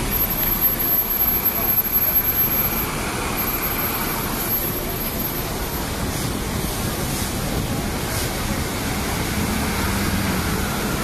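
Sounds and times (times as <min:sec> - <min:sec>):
bus driving past: 0:00.0 - 0:11.0
traffic rumble: 0:00.0 - 0:11.0.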